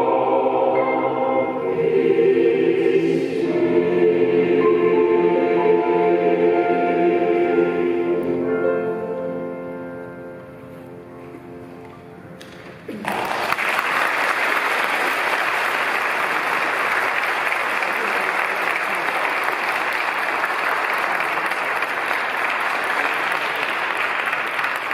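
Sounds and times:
choir holding a chord: 0.0 - 11.6
audience applause: 12.9 - 24.9.

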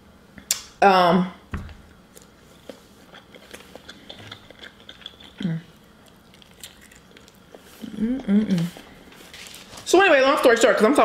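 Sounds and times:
chewing clicks and crackles: 2.2 - 7.6
person humming: 5.4 - 5.7, 7.8 - 8.8.

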